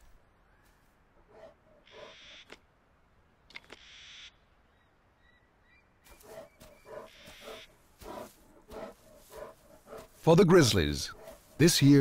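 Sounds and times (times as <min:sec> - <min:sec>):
bear huffing grunts: 0:06.2 - 0:10.3.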